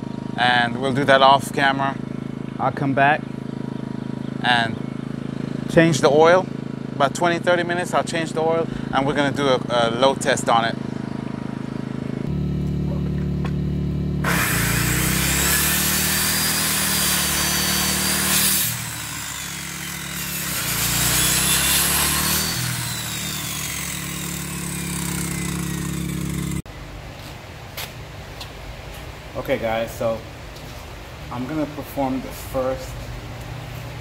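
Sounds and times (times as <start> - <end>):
generator engine humming: 0.0 - 34.0
circular saw cutting wood: 14.1 - 26.6.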